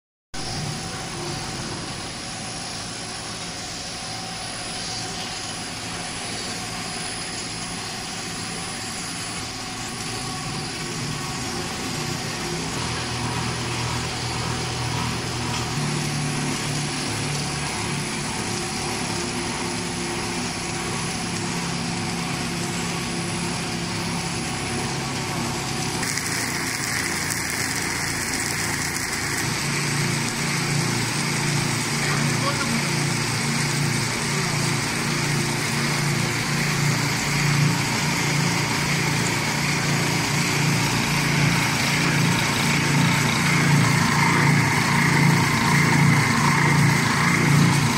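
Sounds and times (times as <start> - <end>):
production line machine hum: 0.4 - 47.9.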